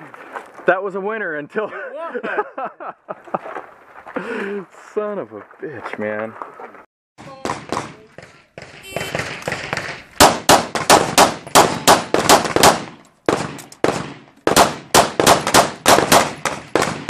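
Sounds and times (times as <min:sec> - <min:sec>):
pistol shots: 0:07.4 - 0:08.0, 0:08.6 - 0:17.0.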